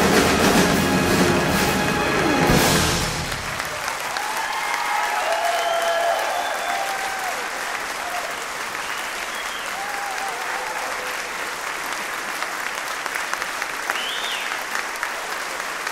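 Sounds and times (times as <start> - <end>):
audience applauding: 0.0 - 15.9
faint cheers: 3.6 - 11.5.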